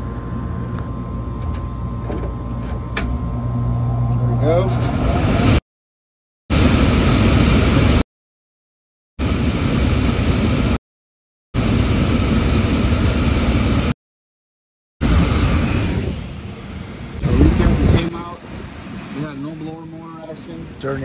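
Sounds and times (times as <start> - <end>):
blower fan rushing: 0.0 - 5.6, 6.5 - 8.0, 11.6 - 13.9, 15.0 - 21.0.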